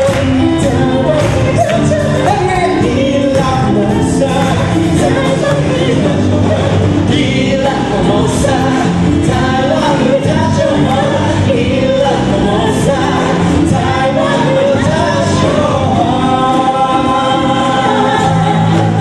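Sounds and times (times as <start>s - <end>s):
band playing a song: 0.0s - 19.0s
voices singing: 0.0s - 19.0s.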